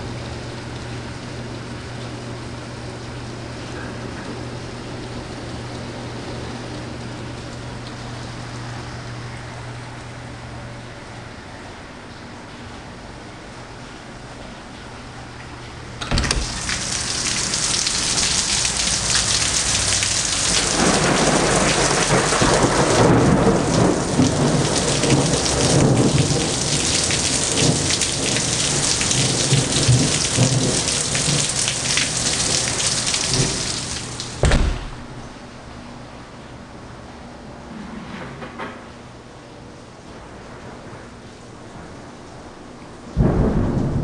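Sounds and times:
heavy rain pouring: 0:00.0 - 0:37.7, 0:39.6 - 0:44.0
door opening click: 0:16.0 - 0:16.7, 0:34.4 - 0:35.0
door shutting thump: 0:16.0 - 0:16.7, 0:34.4 - 0:35.2.

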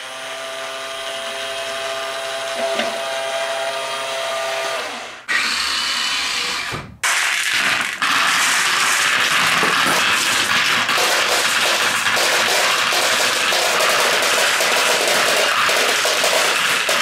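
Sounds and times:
electric motor whining: 0:00.0 - 0:06.8.

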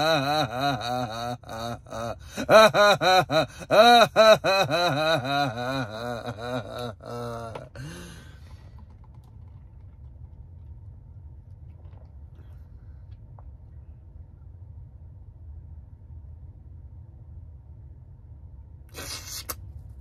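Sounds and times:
man mock sobbing: 0:00.0 - 0:08.2.

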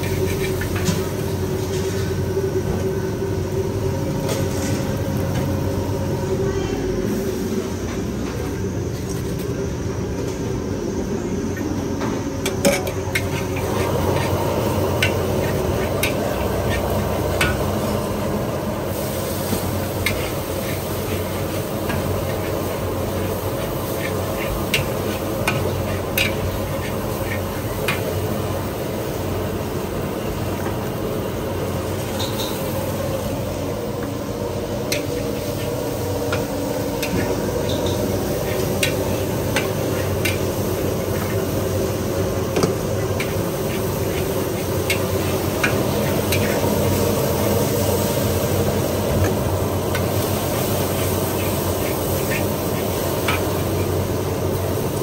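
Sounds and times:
metal spatula scraping wok: 0:00.0 - 0:02.2, 0:12.5 - 0:18.2, 0:18.9 - 0:28.6, 0:36.3 - 0:48.1
frying sizzle: 0:00.0 - 0:55.0.

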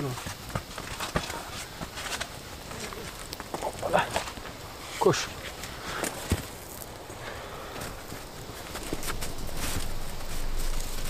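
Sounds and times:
low steady hiss: 0:00.0 - 0:11.0
campfire crackling and popping: 0:00.1 - 0:11.0.

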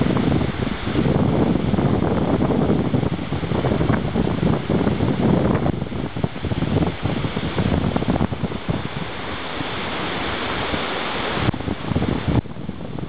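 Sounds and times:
steady hiss of wind and surf: 0:00.0 - 0:13.0
wind buffeting the microphone: 0:00.0 - 0:13.0.

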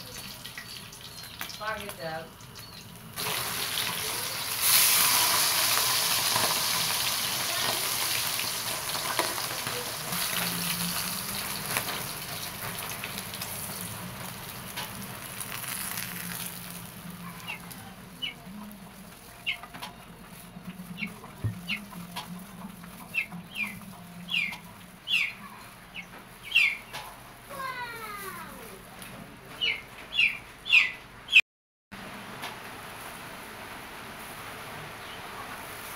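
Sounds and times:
oil sizzling in a wok: 0:00.0 - 0:18.2.

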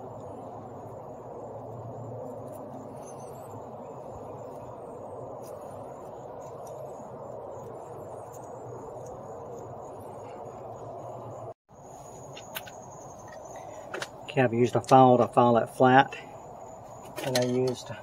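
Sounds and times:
high insect-like buzz: 0:00.0 - 0:14.3.

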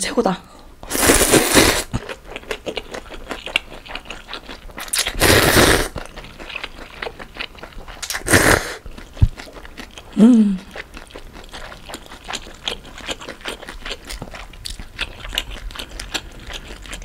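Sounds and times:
wet chewing: 0:00.8 - 0:17.0
noodles slurped loudly: 0:00.9 - 0:09.6.

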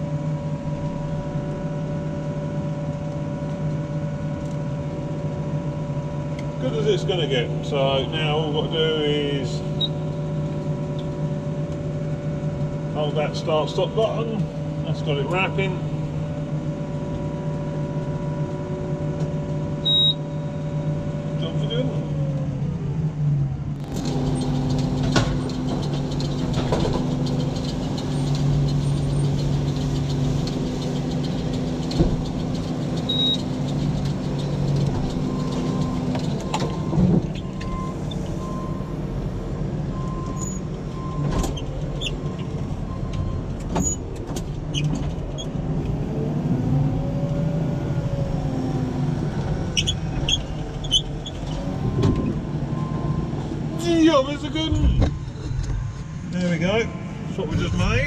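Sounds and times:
tractor engine running: 0:00.0 - 0:58.0
short beeps: 0:19.8 - 0:20.9.

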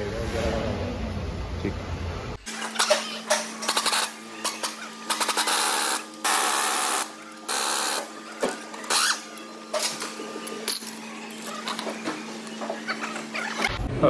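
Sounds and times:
pneumatic impact wrench bursts: 0:02.5 - 0:08.0.

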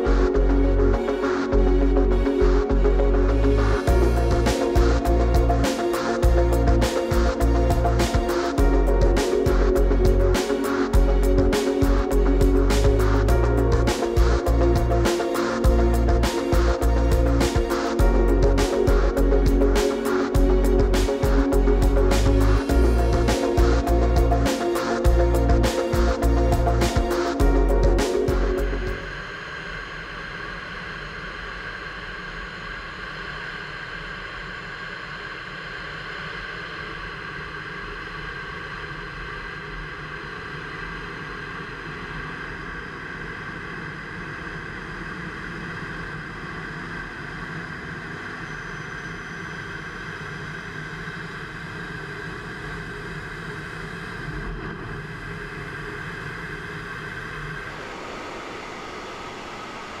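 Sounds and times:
steady tones: 0:00.0 - 0:29.8
high engine whine: 0:00.0 - 1:00.0
rush of air in cockpit: 0:57.2 - 1:00.0.

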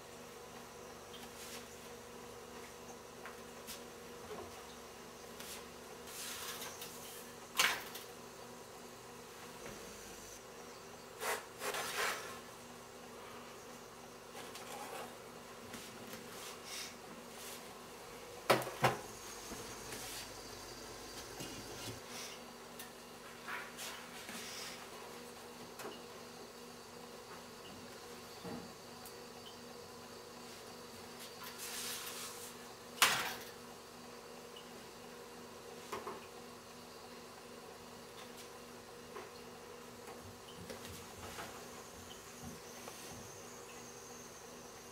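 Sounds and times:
faint high whine: 0:00.0 - 0:11.2, 0:18.1 - 0:22.4, 0:39.2 - 0:44.9
faint buzzing hum: 0:00.0 - 0:44.9.

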